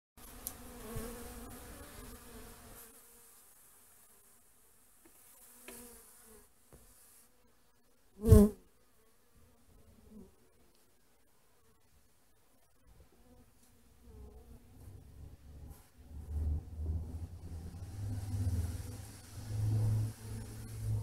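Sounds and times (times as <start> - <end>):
bees buzzing: 0.2 - 4.2, 16.3 - 21.0
bee flying close by: 0.2 - 10.4, 13.2 - 21.0.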